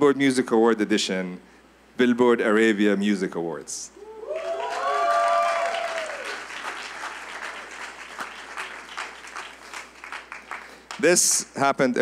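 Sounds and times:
voices cheering: 0:04.0 - 0:07.8
audience applauding: 0:04.3 - 0:11.0.

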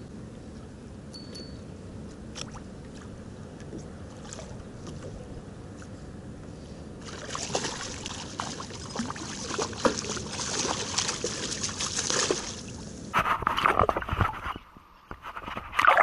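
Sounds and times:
water splashing and trickling: 0:02.3 - 0:05.2, 0:07.0 - 0:13.1.

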